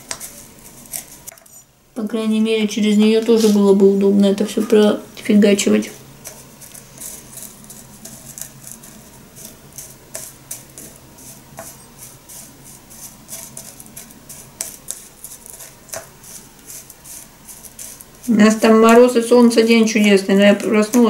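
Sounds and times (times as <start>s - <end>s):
dry tea leaves rustling: 0.0s - 1.6s, 5.8s - 21.0s.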